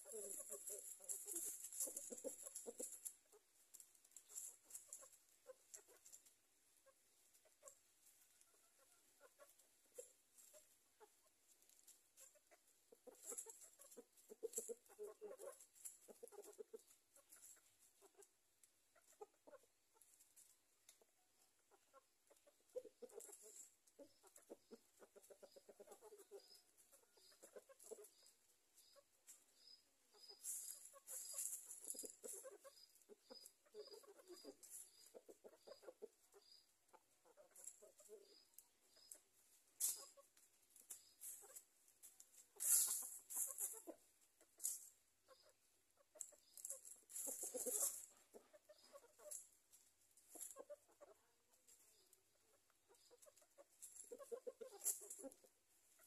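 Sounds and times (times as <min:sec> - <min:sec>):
chickens rustling in leaves: 0:00.0 - 0:56.0
hens clucking: 0:00.0 - 0:56.0
faint high chirp: 0:25.4 - 0:36.8, 0:38.0 - 0:39.3.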